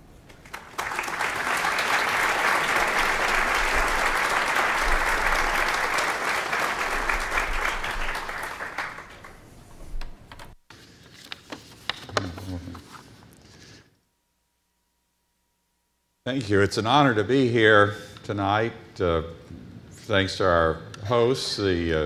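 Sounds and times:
audience applauding: 0.3s - 9.5s.

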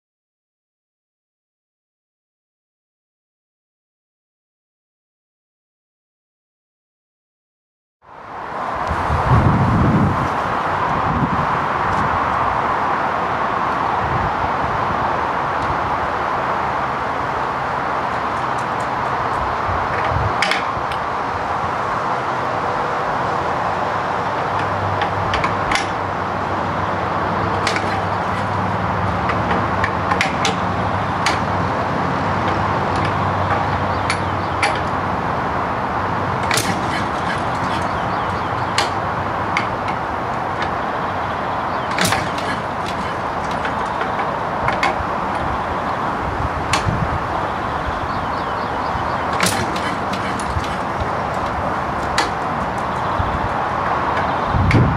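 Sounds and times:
metallic clicks and clanks of hand crank: 27.6s - 28.7s, 36.4s - 39.0s, 41.9s - 45.5s, 49.3s - 53.0s.

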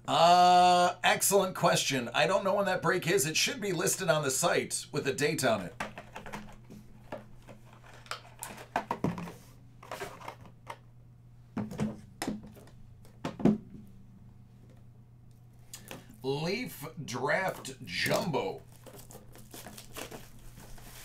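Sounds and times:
steady low hum: 0.0s - 21.0s
hands handling card packaging: 5.7s - 10.8s, 17.3s - 21.0s.

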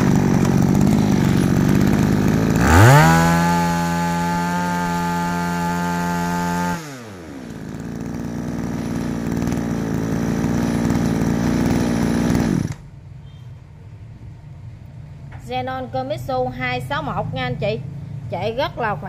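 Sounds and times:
brush cutter engine: 0.0s - 12.9s.

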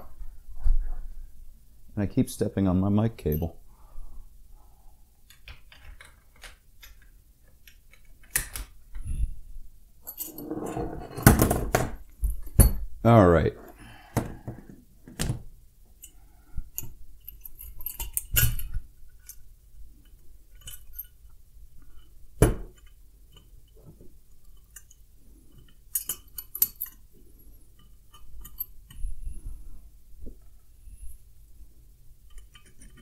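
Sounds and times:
metal fittings clinking: 10.0s - 11.3s, 25.6s - 27.0s.

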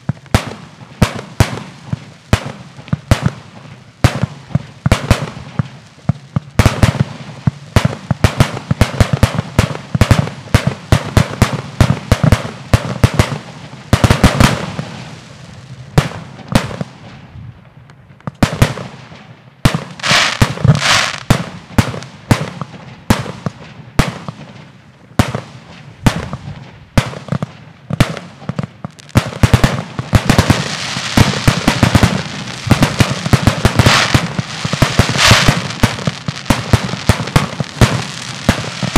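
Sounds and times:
firework bursts and bangs: 0.0s - 38.9s
firework crackling: 0.0s - 38.9s.

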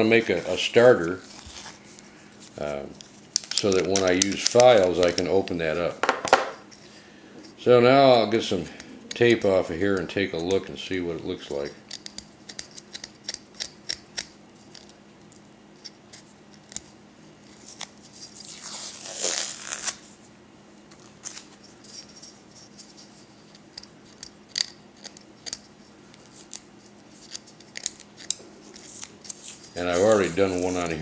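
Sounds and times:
masking tape crackling: 17.5s - 20.0s
tape ripping: 17.5s - 20.1s, 20.9s - 21.6s.

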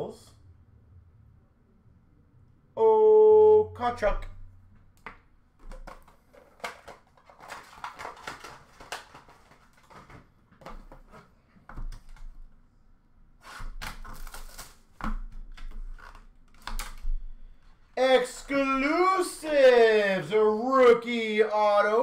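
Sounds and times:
card packs shuffling in plastic bin: 5.6s - 12.3s
wrapping crumpling: 5.7s - 11.0s, 13.5s - 17.2s.

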